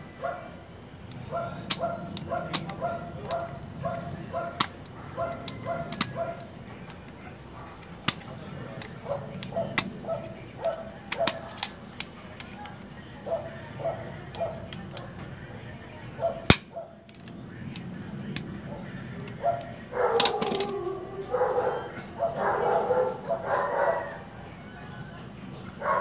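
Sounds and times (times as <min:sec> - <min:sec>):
pliers clicking on metal: 0:01.0 - 0:03.5, 0:04.2 - 0:07.2, 0:07.8 - 0:12.9, 0:16.4 - 0:18.5, 0:19.2 - 0:21.0
dog yapping: 0:01.2 - 0:06.5, 0:08.9 - 0:11.6, 0:13.2 - 0:15.0, 0:16.2 - 0:17.0, 0:18.7 - 0:24.3, 0:25.8 - 0:26.0.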